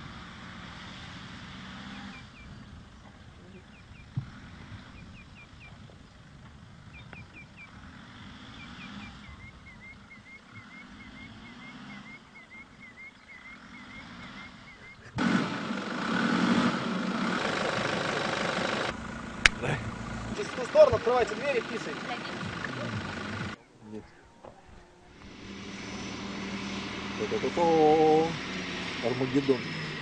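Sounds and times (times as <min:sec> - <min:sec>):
engine running: 0:00.0 - 0:23.6, 0:25.0 - 0:30.0
quick bird chirps: 0:06.8 - 0:15.2.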